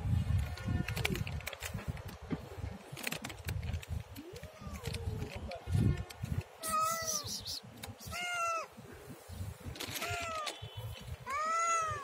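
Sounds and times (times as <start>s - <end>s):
cat meowing: 6.6s - 7.4s, 8.0s - 8.7s, 11.3s - 12.0s.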